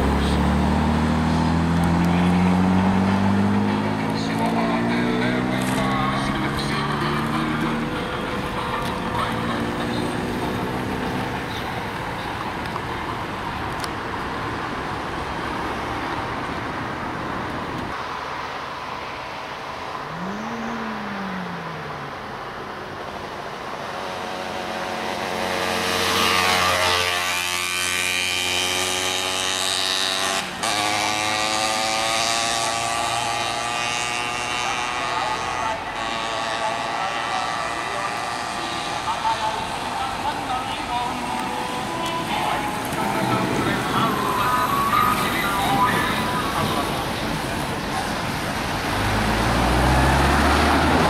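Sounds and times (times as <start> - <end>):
road traffic passing: 0.0 - 51.0
motorcycle engine at low speed: 24.6 - 39.6.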